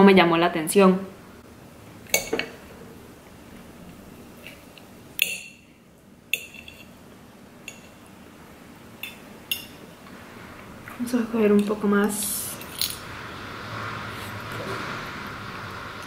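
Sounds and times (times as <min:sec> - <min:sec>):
cutlery clinking on a plate: 0:06.3 - 0:06.9.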